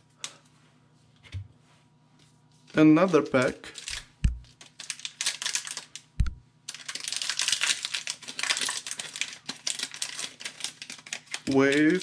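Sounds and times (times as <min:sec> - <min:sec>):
foil wrapper crinkling: 0:02.7 - 0:12.0
soft thump: 0:04.2 - 0:04.4.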